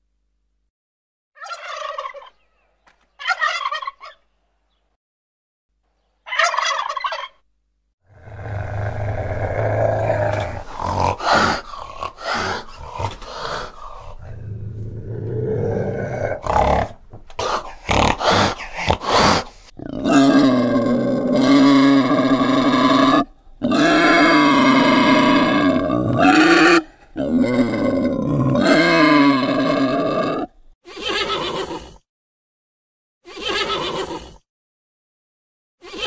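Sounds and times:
turkey gobbling: 1.4s - 2.6s, 3.2s - 4.2s, 6.2s - 7.4s
wild cat rough calls: 8.1s - 30.6s
wild boar calls: 8.1s - 32.0s.

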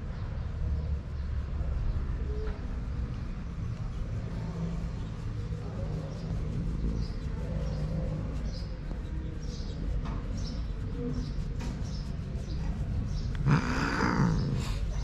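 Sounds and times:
cat growling yowl with hiss: 13.3s - 15.0s.

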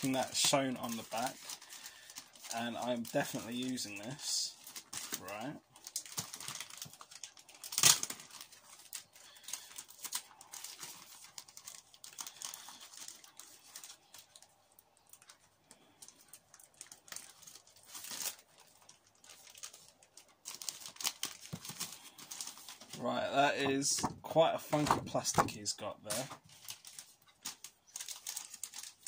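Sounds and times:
plastic packaging crinkling: 0.0s - 29.0s.

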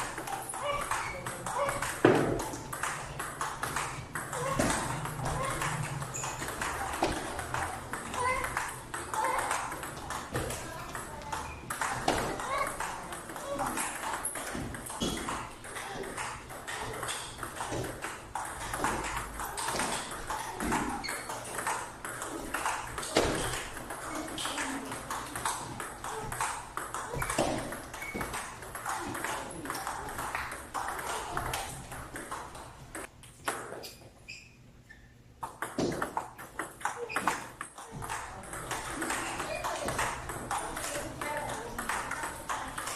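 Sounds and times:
table tennis balls clicking: 0.0s - 42.9s.

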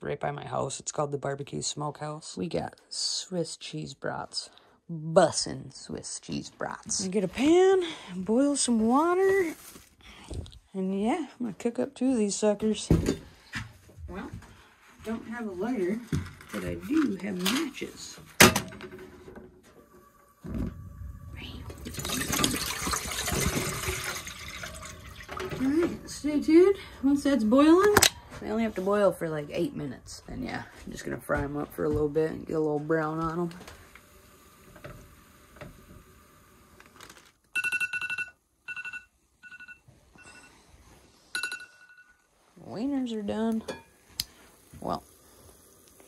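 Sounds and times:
water pouring into metal pot: 19.8s - 26.0s
phone alarm beeping: 37.5s - 40.6s.

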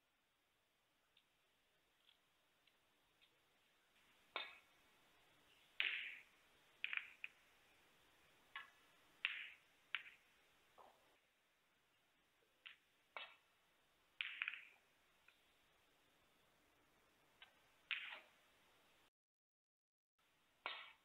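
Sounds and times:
snooker balls clacking: 14.2s - 14.8s.

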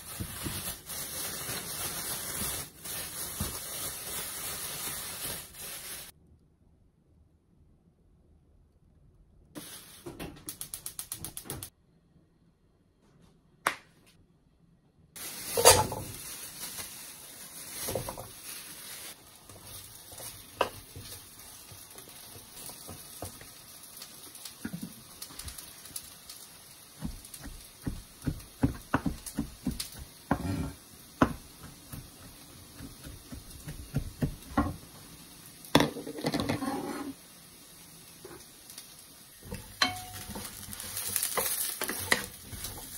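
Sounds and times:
potatoes sizzling in a frying pan: 0.0s - 6.1s, 9.6s - 10.1s, 15.2s - 42.9s
wooden spatula knocking in pan: 27.0s - 30.6s, 31.2s - 34.8s.

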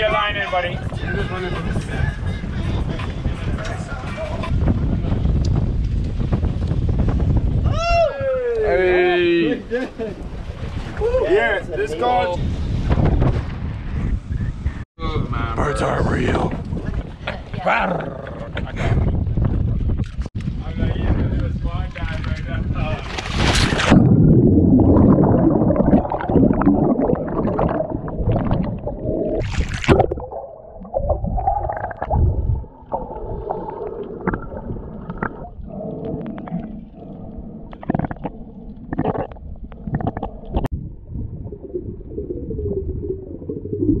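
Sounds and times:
splash into water: 23.0s - 24.2s, 29.4s - 34.7s
low underwater rumbling: 23.5s - 44.0s
gurgling bubbles: 23.7s - 44.0s
underwater clicks: 25.1s - 43.9s.

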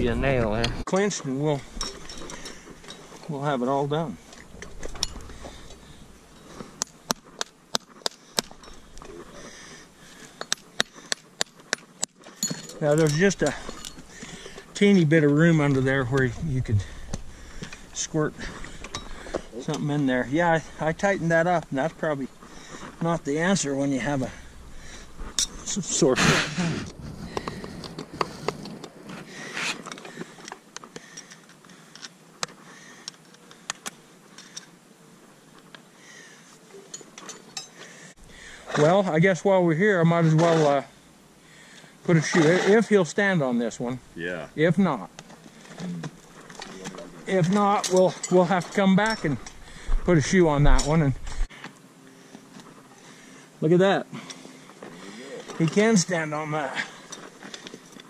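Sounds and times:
tool scraping on hoof: 40.2s - 40.9s, 42.1s - 43.0s.

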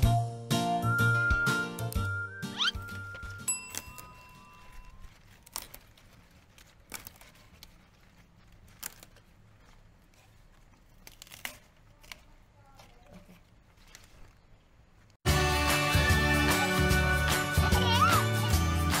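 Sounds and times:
clicks and crinkling rustles: 2.8s - 15.2s.

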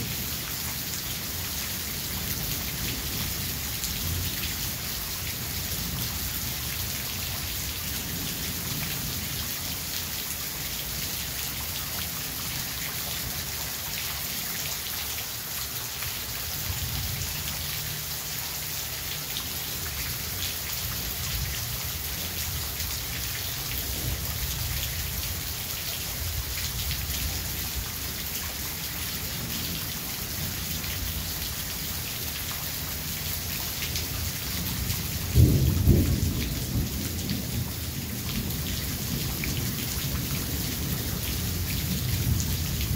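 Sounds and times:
steady rain falling: 0.0s - 42.9s
distant thunder rumbling: 35.3s - 38.6s.

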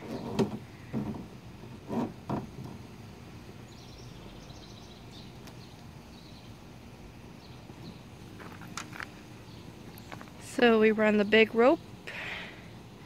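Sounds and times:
steady low hiss: 0.0s - 13.0s
small birds chirping: 3.4s - 12.5s.

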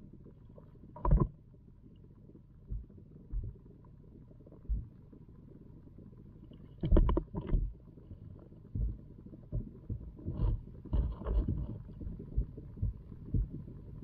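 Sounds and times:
low steady rumble: 0.0s - 14.0s
muffled underwater knocks: 1.0s - 1.4s, 2.7s - 3.6s, 6.8s - 7.8s, 8.7s - 13.6s.

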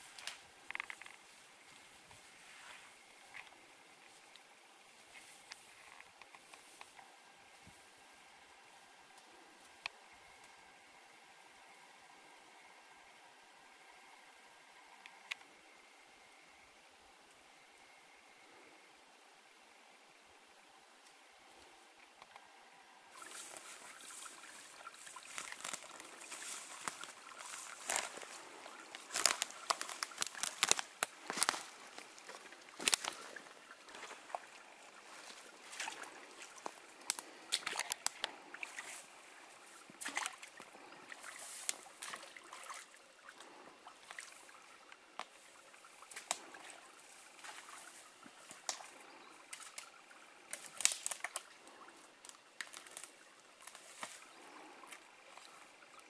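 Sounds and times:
twigs snapping: 0.1s - 1.2s, 23.2s - 34.4s, 35.2s - 39.0s, 46.1s - 46.6s, 47.4s - 55.0s
footsteps through dry grass: 23.1s - 39.2s.

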